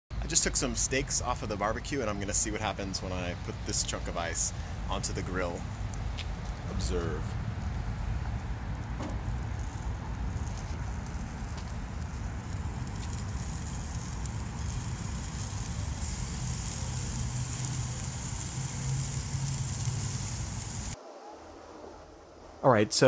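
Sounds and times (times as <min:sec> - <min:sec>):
low outdoor rumble: 0:00.2 - 0:22.8
ice sizzling on hot grate: 0:09.1 - 0:21.0.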